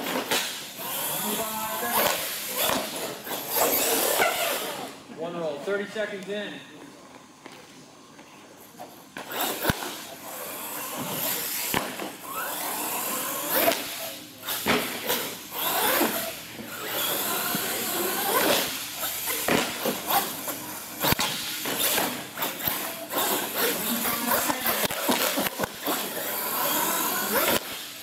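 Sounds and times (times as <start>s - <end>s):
toy truck electric motors whining: 0.1s - 5.0s, 9.2s - 27.9s.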